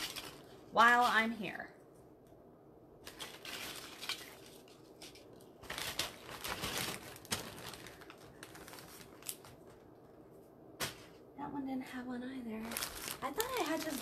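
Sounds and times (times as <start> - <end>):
bags crinkling and rustling: 0.0 - 0.6, 3.0 - 10.1, 12.6 - 14.0.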